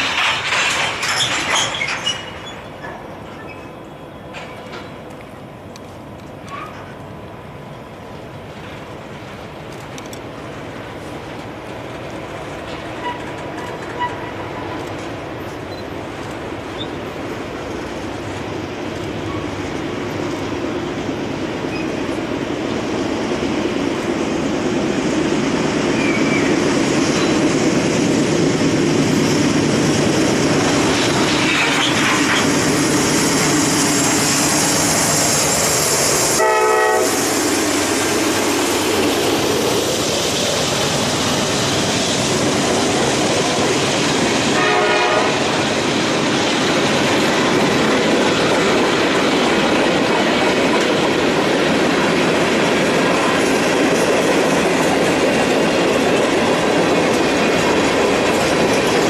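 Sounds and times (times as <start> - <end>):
freight cars clattering: 0.0 - 3.6
diesel freight train passing: 0.0 - 59.0
train horn blasts: 36.4 - 37.3, 44.6 - 45.4.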